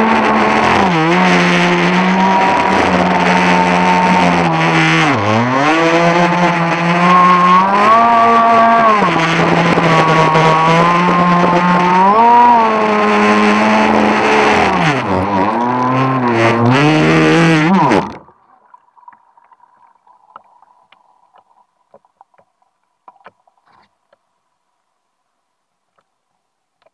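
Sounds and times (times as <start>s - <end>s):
rc boat motor whining: 0.0s - 18.3s
small water splashes: 18.1s - 24.0s.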